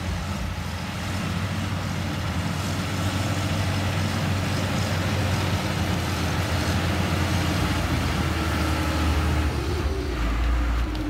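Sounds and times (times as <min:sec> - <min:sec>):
diesel engine running: 0:00.0 - 0:11.0.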